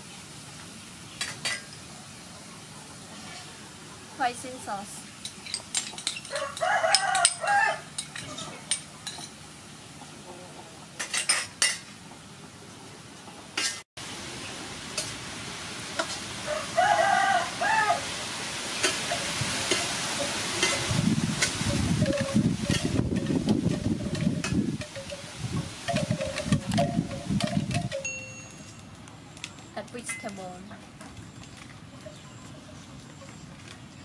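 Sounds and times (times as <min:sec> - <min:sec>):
rooster crowing: 0:06.3 - 0:08.0, 0:16.4 - 0:18.2
beef sizzling in a wok: 0:14.0 - 0:23.8.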